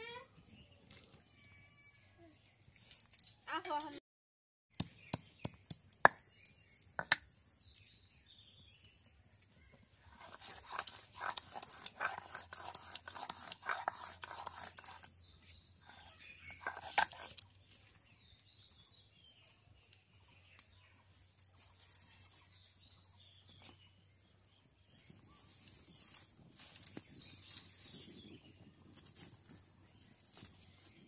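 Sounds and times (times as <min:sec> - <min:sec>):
birds chirping: 0:04.9 - 0:21.2
stone grinder scraping and knocking: 0:10.1 - 0:17.4.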